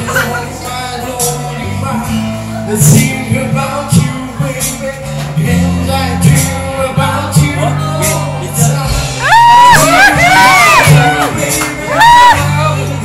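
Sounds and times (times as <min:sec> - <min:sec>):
man singing into microphone: 0:00.0 - 0:13.0
drum kit: 0:02.8 - 0:13.0.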